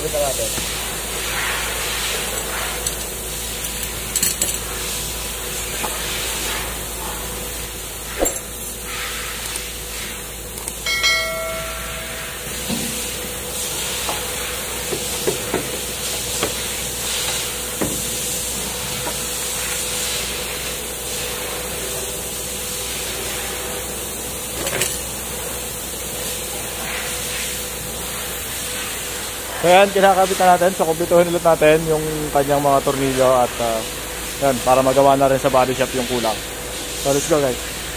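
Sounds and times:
steady hiss: 0:00.0 - 0:37.9
short ringing tone: 0:10.8 - 0:12.7.

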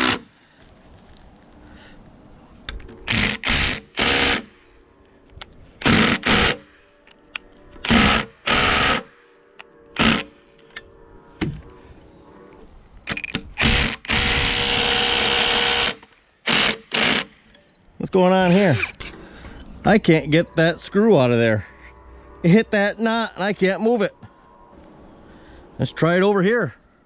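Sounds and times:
impact driver driving screw: 0:03.0 - 0:04.5, 0:10.0 - 0:10.3, 0:13.1 - 0:17.3.

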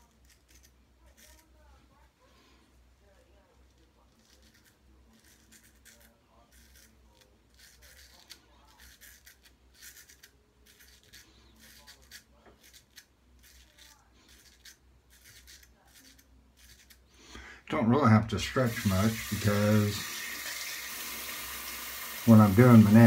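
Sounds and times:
straight razor scraping stubble: 0:04.0 - 0:17.1.

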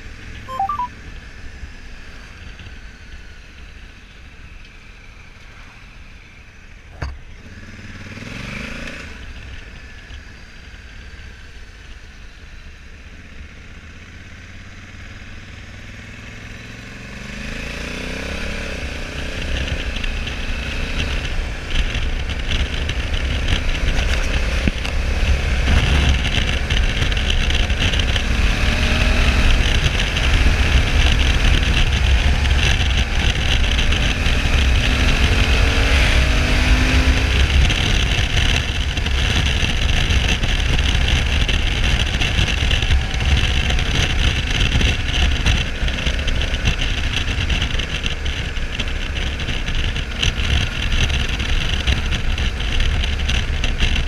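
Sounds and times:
motorcycle engine running: 0:01.4 - 0:54.0
wind rush and buffeting: 0:18.5 - 0:54.0.

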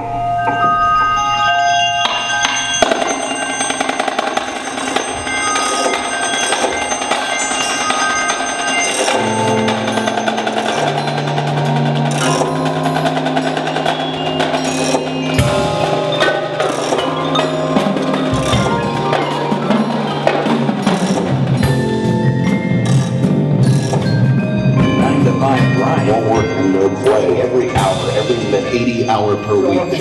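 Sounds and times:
marimbas and vibraphones: 0:00.0 - 0:30.0
tenor drums: 0:02.0 - 0:30.0
low bass notes: 0:09.5 - 0:30.0.

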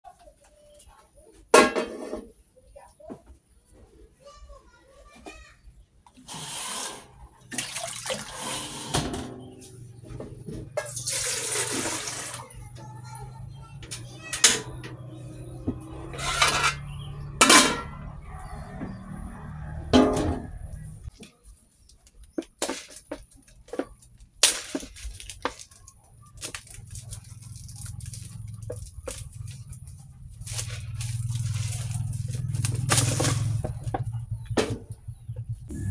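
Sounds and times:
water splashing from dipper: 0:07.5 - 0:08.7
plastic packet crinkling: 0:24.1 - 0:33.5.

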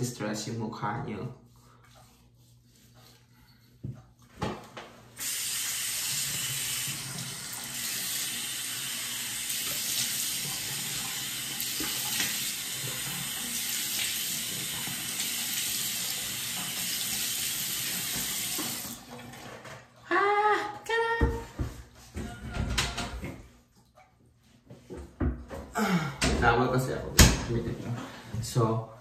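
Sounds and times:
faucet running into sink: 0:05.2 - 0:19.4.

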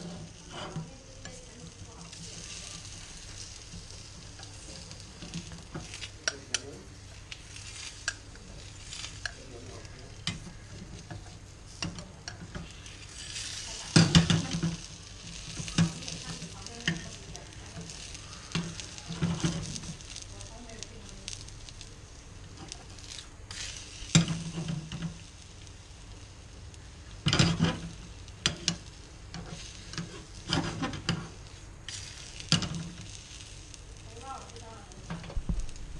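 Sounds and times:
metal spatula scraping pan: 0:00.0 - 0:06.6, 0:08.8 - 0:20.2, 0:27.2 - 0:33.1
egg sizzling in frying pan: 0:00.0 - 0:35.9.

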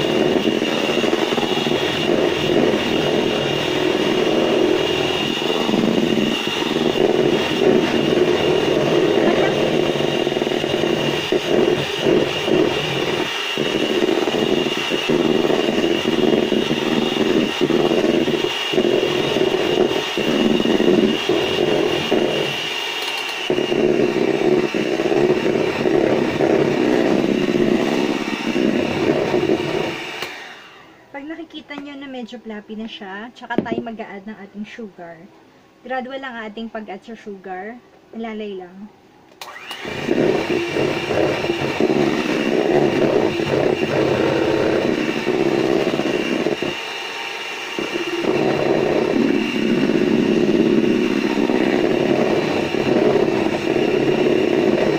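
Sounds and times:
electric hand mixer whining: 0:00.0 - 0:32.4, 0:39.4 - 0:54.9.

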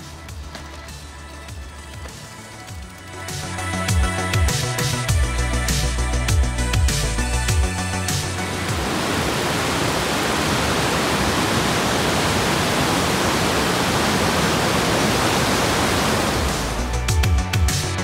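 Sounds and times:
music: 0:00.0 - 0:09.6, 0:16.0 - 0:18.0
stream rushing over rocks: 0:08.2 - 0:16.9.

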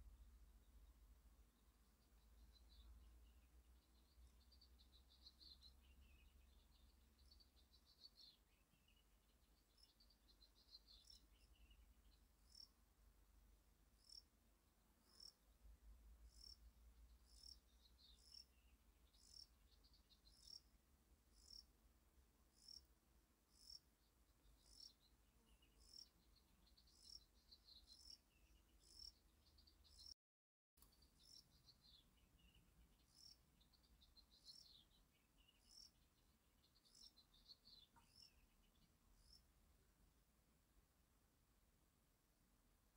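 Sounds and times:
faint high chirps: 0:30.8 - 0:39.5.

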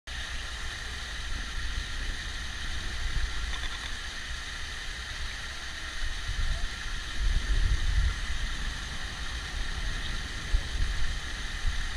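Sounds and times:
electric train rumbling: 0:06.6 - 0:11.9.

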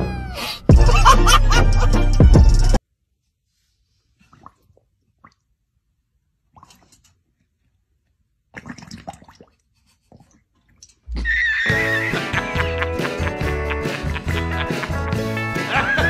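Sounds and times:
loud music: 0:00.0 - 0:02.8, 0:11.7 - 0:16.0
dog lapping water: 0:04.2 - 0:05.4, 0:06.5 - 0:07.2, 0:08.5 - 0:10.9.

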